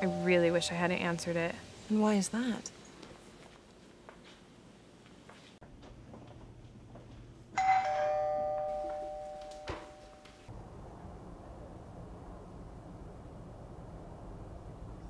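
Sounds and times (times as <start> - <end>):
two-note doorbell chime: 0.0 - 1.2, 7.6 - 10.5.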